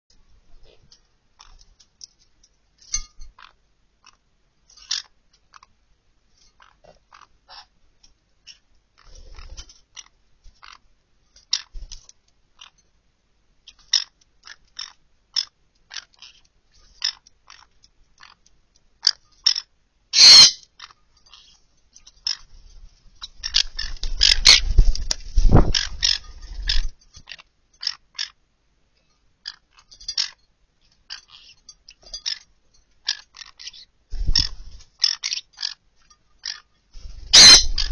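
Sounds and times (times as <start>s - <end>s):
wings flapping: 23.6s - 26.9s, 34.1s - 34.9s.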